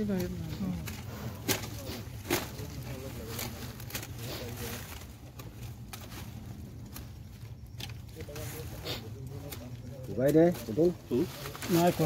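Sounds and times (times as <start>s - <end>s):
pruning knife cutting woody stems: 0.0s - 6.3s.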